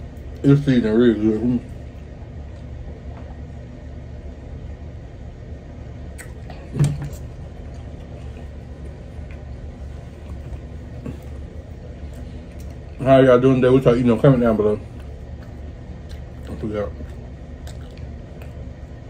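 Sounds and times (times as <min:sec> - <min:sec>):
low background hum: 0:00.0 - 0:19.0.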